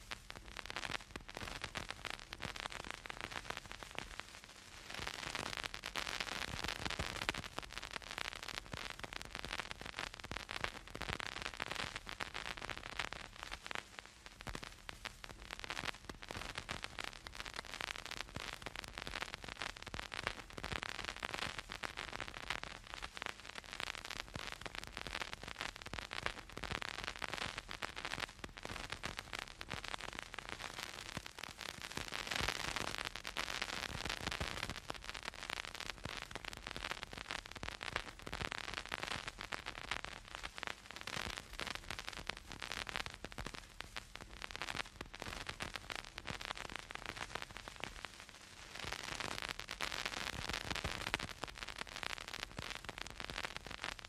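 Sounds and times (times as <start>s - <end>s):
steady hiss: 0.0s - 54.0s
vinyl record crackle: 0.0s - 54.0s.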